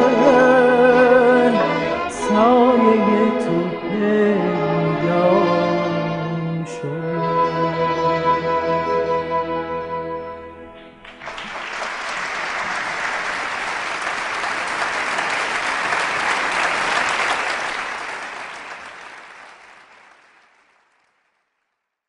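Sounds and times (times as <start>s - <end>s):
audience applauding: 11.0s - 21.8s.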